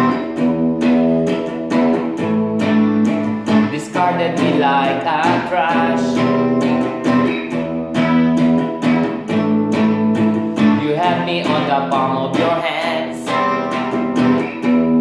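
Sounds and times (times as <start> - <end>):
electric guitar strumming chords: 0.0 - 15.0.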